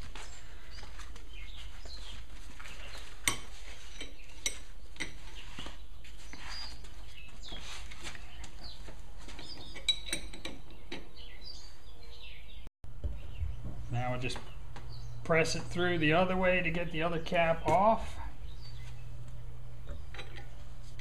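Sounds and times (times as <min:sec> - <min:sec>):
steady low hum: 0:00.0 - 0:21.0
metal tools clinking: 0:09.4 - 0:11.0.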